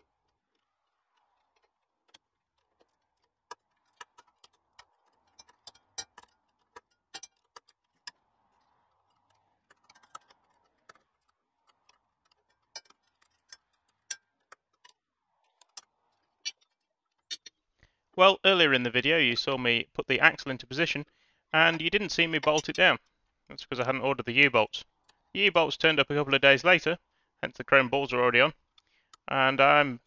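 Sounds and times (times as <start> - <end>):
spanners clicking on bolts: 0.0 - 17.6, 21.0 - 23.2.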